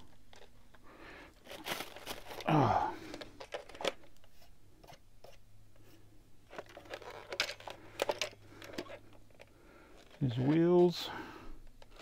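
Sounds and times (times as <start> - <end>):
plastic wrap rustling: 0.0 - 4.5
faint steady hum: 0.0 - 12.0.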